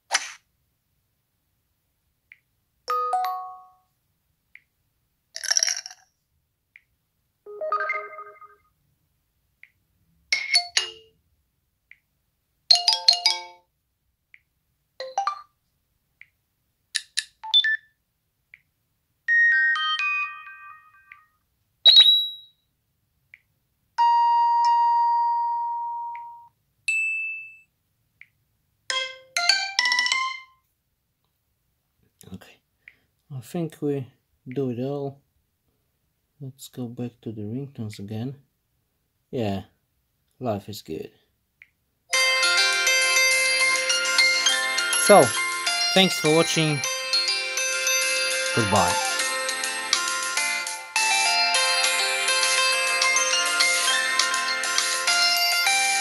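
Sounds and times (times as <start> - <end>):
phone notification chimes: 2.9 - 3.8, 44.9 - 46.9, 48.6 - 49.1.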